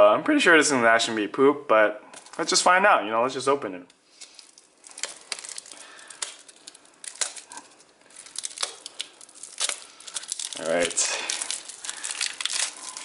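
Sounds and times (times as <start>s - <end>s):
plastic shrink-wrap crinkling: 4.0s - 13.0s.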